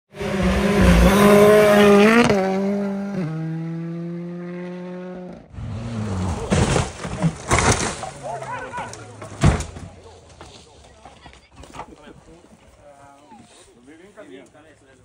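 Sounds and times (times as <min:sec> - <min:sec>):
rally car engine revving: 0:00.1 - 0:07.4
second rally car engine: 0:00.1 - 0:10.0.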